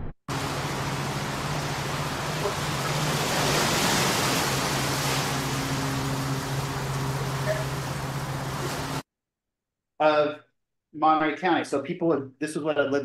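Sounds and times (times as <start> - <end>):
low hum: 0.0 - 9.0.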